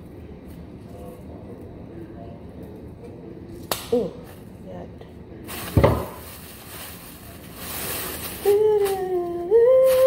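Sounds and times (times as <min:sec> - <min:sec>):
woman humming: 0:08.4 - 0:10.0.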